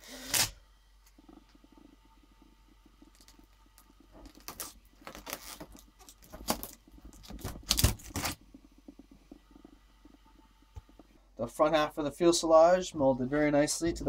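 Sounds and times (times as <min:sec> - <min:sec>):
fiberglass cracking and clicking: 0:00.3 - 0:11.2.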